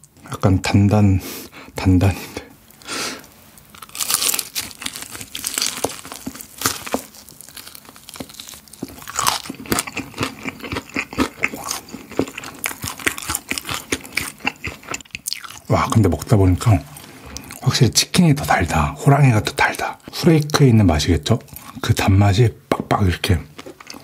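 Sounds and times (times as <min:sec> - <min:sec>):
crunchy fried chicken chewing: 0:03.6 - 0:17.7, 0:21.4 - 0:21.9, 0:23.6 - 0:24.0.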